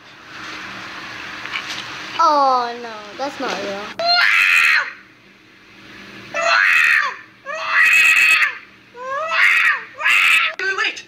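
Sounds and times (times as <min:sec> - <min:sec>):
cat yowling: 0:04.0 - 0:05.0, 0:06.4 - 0:10.6.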